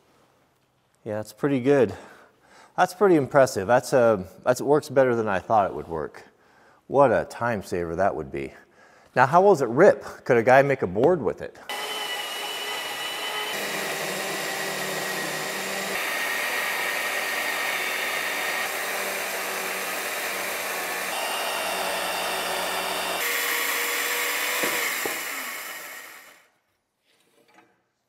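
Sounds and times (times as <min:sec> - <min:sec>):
saw motor whining: 0:11.7 - 0:26.5.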